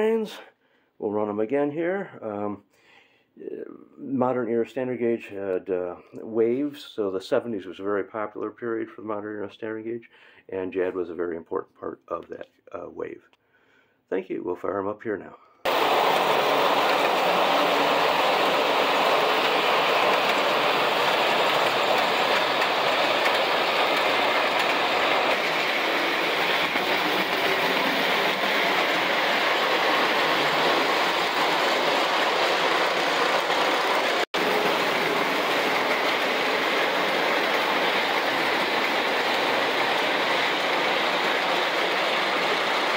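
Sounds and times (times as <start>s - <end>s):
toy trains running on metal track: 15.7s - 42.9s.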